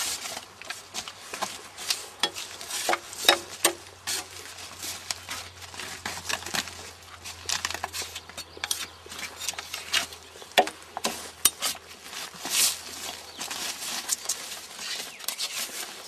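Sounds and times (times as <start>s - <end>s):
drawknife scraping bark off log: 2.2s - 4.4s, 7.8s - 11.8s.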